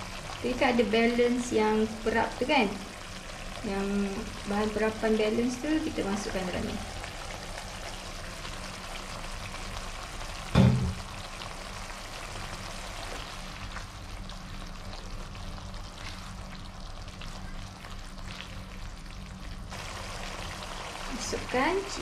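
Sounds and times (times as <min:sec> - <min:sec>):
sauce sizzling in a wok: 0:00.0 - 0:22.0
loud thump: 0:10.5 - 0:11.0.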